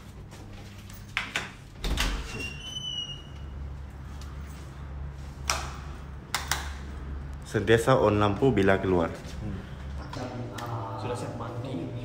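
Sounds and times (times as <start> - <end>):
steady low hum: 3.3 - 12.0.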